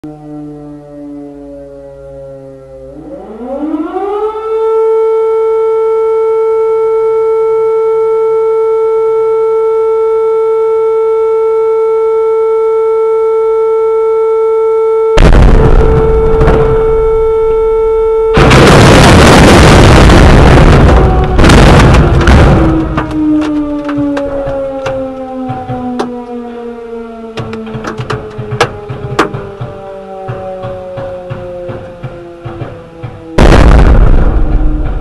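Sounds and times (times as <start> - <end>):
air-raid siren wailing: 0.0 - 35.0
loud explosion blast: 15.2 - 24.4, 33.4 - 35.0.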